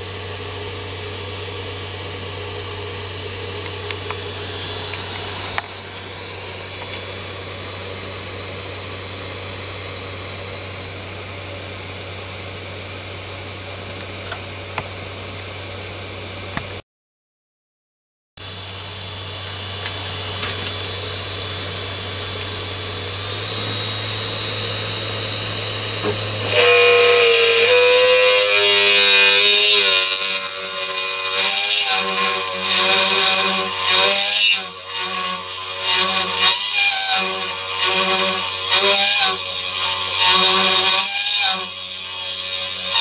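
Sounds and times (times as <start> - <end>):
drill bit cutting metal whine: 0.0 - 12.7, 18.4 - 43.0
spindle motor running: 0.0 - 12.8, 18.4 - 43.0.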